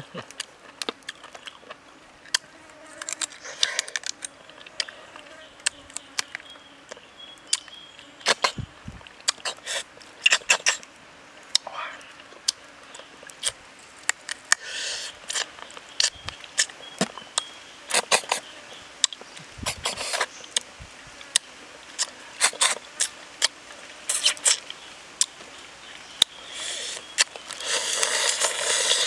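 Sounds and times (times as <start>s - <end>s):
prawn shells cracking: 0.2s - 4.9s.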